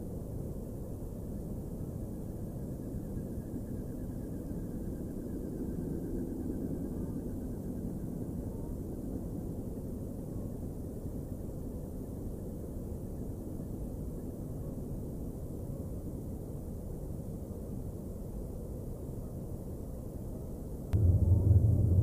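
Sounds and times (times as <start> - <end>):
low outdoor rumble: 20.9 - 22.0.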